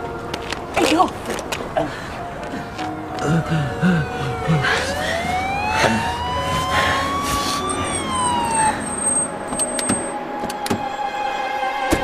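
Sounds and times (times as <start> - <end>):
emergency siren wailing: 3.2 - 10.2.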